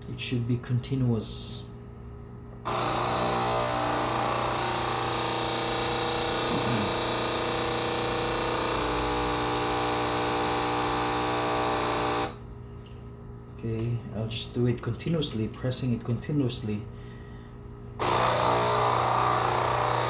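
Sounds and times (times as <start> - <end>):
coffee machine pump buzzing: 2.6 - 12.5, 18.0 - 20.0.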